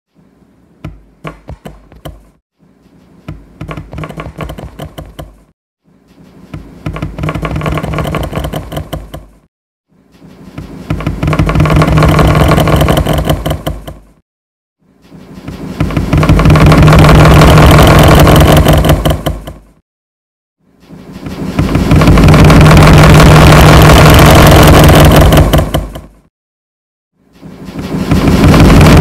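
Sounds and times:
sharp taps and knocks: 0.8 - 2.4, 3.3 - 5.5, 6.5 - 9.4, 10.6 - 14.1.

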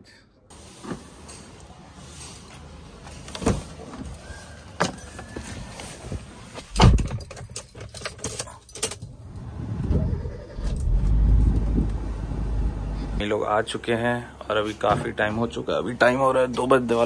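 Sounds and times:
keys jangling: 6.7 - 9.5
car engine starting and idling: 9.1 - 13.3.

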